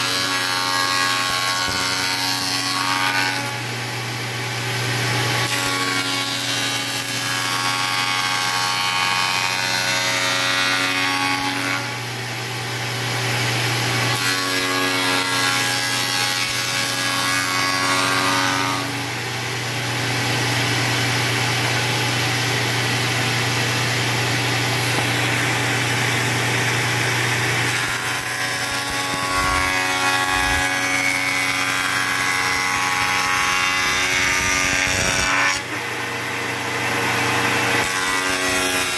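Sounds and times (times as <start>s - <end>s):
cutter shaping wood: 0.0s - 38.9s.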